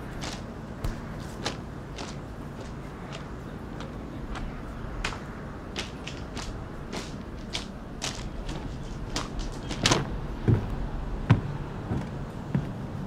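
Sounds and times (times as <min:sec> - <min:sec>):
low steady background hum: 0:00.0 - 0:13.0
footsteps walking: 0:00.1 - 0:10.7.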